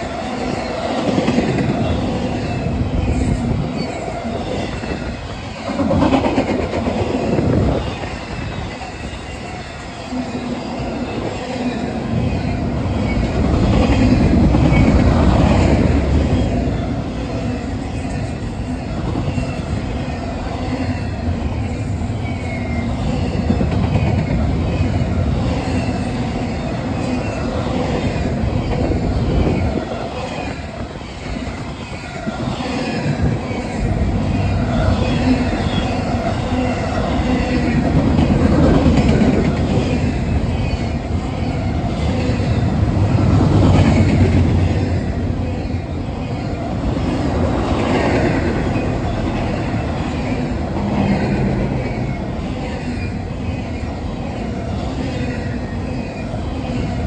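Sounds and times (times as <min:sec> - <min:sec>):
freight train wheels rumbling: 0:00.0 - 0:57.0
high-pitched wheel squeals: 0:16.4 - 0:37.8.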